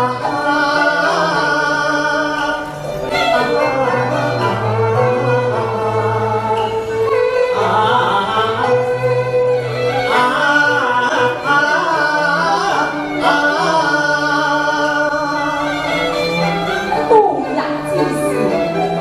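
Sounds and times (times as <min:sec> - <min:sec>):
backing music with bowed strings: 0:00.0 - 0:19.0
man singing into microphone: 0:10.2 - 0:16.0
woman singing: 0:16.2 - 0:19.0.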